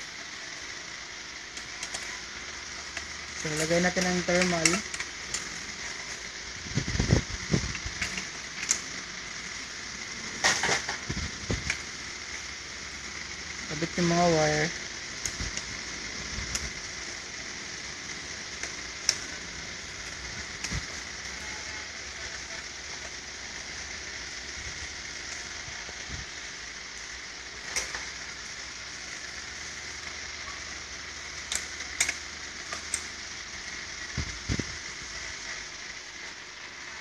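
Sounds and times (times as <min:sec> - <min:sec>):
steady hiss: 0:00.0 - 0:37.0
small clicks and taps of parts: 0:07.7 - 0:08.8, 0:31.5 - 0:33.1
sharp clicks: 0:31.4 - 0:33.2.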